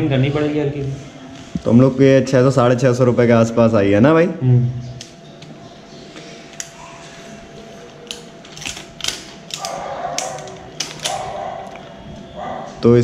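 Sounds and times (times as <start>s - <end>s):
plastic parts and cables tapping: 7.9s - 11.3s.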